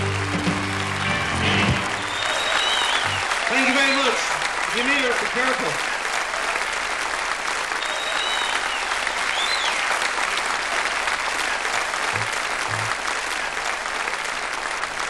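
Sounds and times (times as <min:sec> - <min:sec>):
audience applauding: 0:00.0 - 0:15.0
high whistles: 0:01.9 - 0:04.2, 0:07.8 - 0:10.0.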